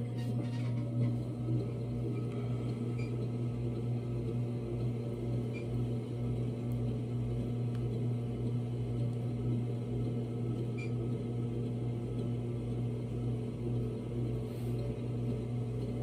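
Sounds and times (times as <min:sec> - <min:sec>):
pottery wheel motor humming: 0:00.0 - 0:16.0.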